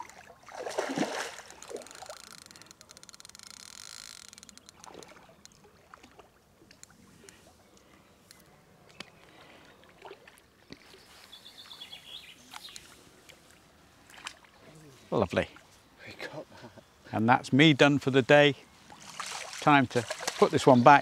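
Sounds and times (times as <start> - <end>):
fish splashing in water: 0.0 - 3.4, 19.0 - 20.6.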